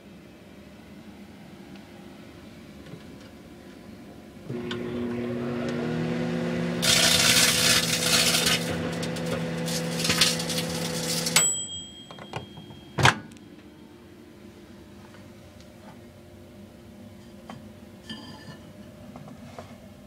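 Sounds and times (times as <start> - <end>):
microwave oven humming: 0.0 - 20.0
chip bag crackling: 6.8 - 11.4
timer ding: 11.4 - 13.0.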